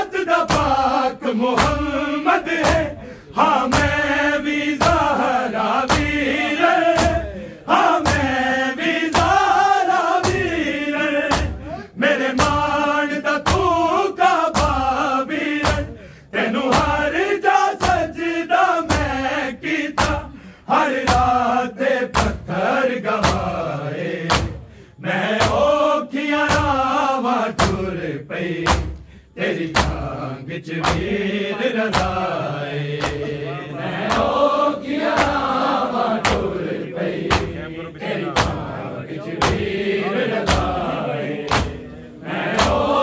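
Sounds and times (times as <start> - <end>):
men chanting mournful melody: 0.0 - 43.0
chest-beating slaps: 0.3 - 3.0, 3.6 - 12.8, 13.4 - 16.0, 17.8 - 18.1, 19.9 - 21.5, 22.1 - 22.5, 23.2 - 23.6, 24.2 - 24.8, 25.4 - 25.7, 26.4 - 26.9, 27.5 - 27.9, 28.5 - 43.0.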